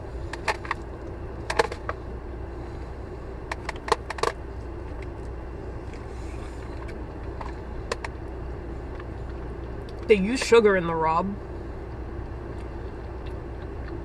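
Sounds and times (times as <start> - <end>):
low hum inside car: 0.0 - 14.0.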